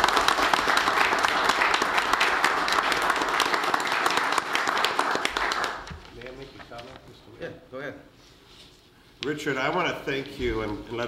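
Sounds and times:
small group applauding: 0.0 - 6.6.

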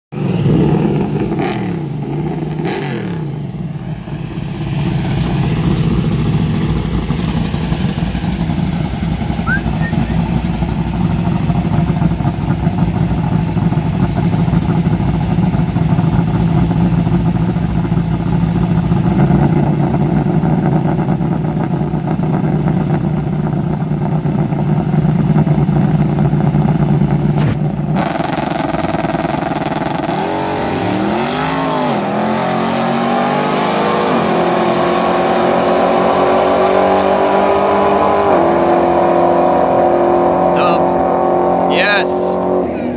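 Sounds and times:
drag car engine: 0.1 - 42.9.

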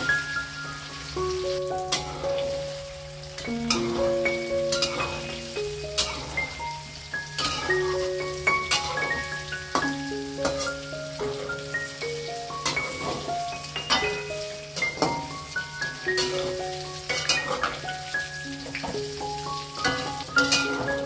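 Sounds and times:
soft background music: 0.0 - 21.0
tofu sizzling in hot oil: 0.0 - 21.0
metal spatula scraping wok: 6.0 - 6.6, 7.4 - 8.0, 16.2 - 17.8, 19.9 - 21.0.

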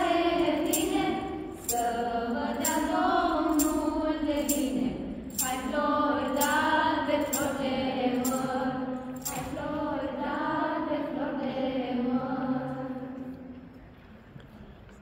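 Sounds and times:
group singing a carol: 0.0 - 13.6.

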